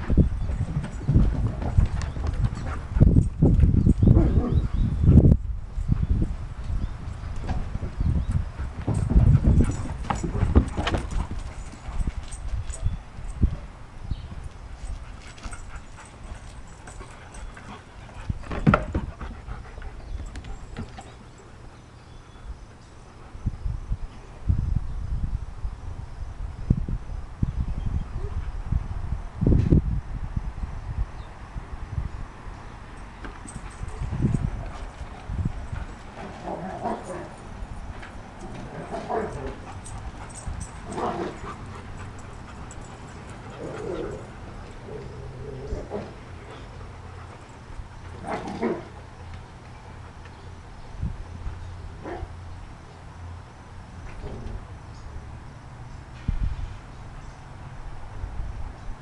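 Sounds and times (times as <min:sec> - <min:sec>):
dogs panting: 0:00.0 - 0:03.4, 0:14.8 - 0:22.3, 0:33.3 - 0:50.6
dogs moving about: 0:08.6 - 0:13.4, 0:14.6 - 0:21.6, 0:33.0 - 0:50.4.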